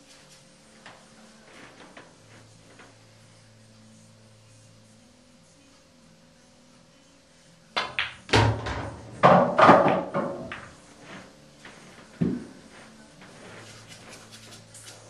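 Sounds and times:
ball dropping into pocket: 7.8 - 10.8
pool balls clacking: 7.8 - 13.4
cue tip clicking cue ball: 9.8 - 10.8.

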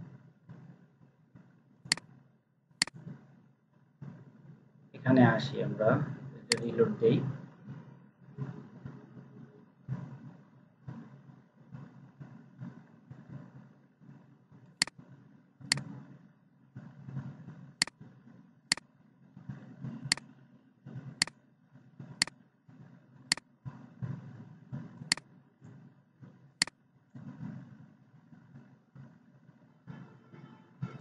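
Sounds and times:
faint low hum: 0.0 - 31.0
computer mouse clicks: 1.9 - 2.1, 6.5 - 6.7, 15.7 - 15.9.

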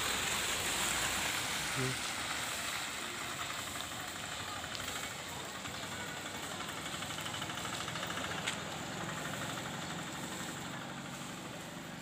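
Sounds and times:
rain hissing: 0.0 - 12.0
wet street noise: 0.0 - 12.0
motorcycle engine passing: 4.2 - 12.0.

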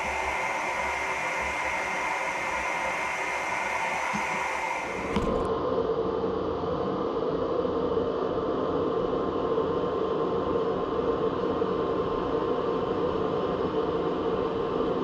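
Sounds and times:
gas forge air rush: 0.0 - 5.5.

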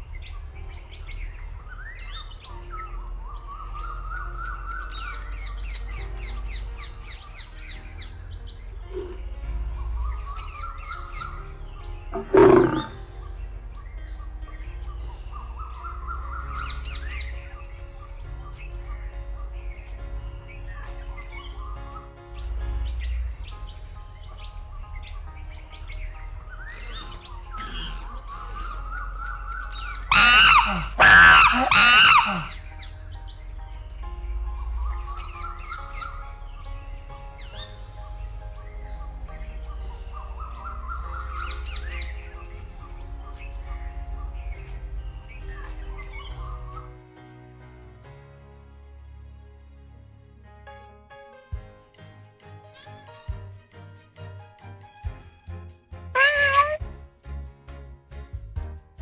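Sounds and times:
background music: 0.0 - 59.0
lion roar: 8.8 - 9.4, 12.1 - 13.2, 30.1 - 32.6
cartoon birds chirping: 10.0 - 19.2, 26.2 - 33.0, 56.2 - 56.8
loud calls with bending pitch: 29.8 - 32.7, 56.2 - 56.8
cartoon bird chirps: 30.1 - 32.6, 56.2 - 56.8.

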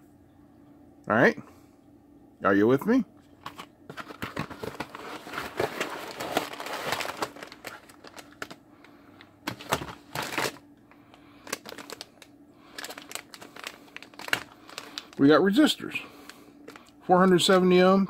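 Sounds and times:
plastic bags crinkling: 3.5 - 15.6, 16.6 - 17.4.

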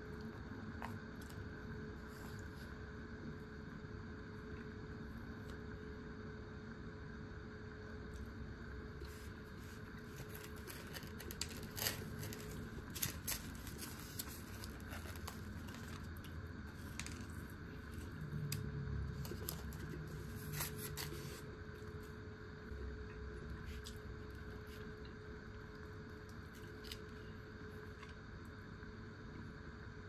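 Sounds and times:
steady low hum: 0.0 - 30.0
crackle: 9.0 - 28.9.

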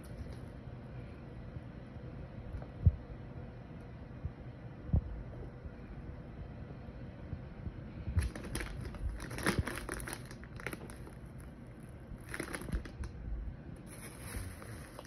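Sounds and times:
plastic bag crinkling: 8.2 - 13.2, 13.8 - 15.0.

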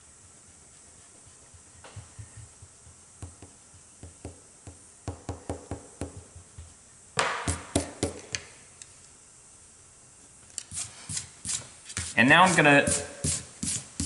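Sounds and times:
eraser rubbing on paper: 10.7 - 14.0.

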